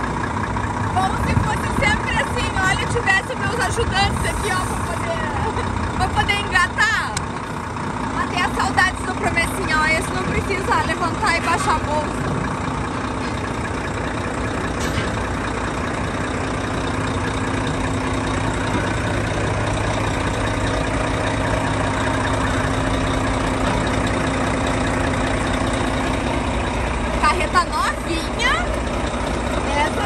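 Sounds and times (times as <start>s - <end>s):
diesel engine idling: 0.0s - 30.0s.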